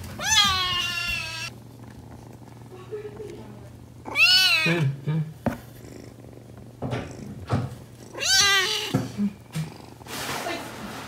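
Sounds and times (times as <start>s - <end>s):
kitten meowing: 0.2s - 1.5s, 4.0s - 4.8s, 8.1s - 9.0s
soft knocks: 5.4s - 5.8s.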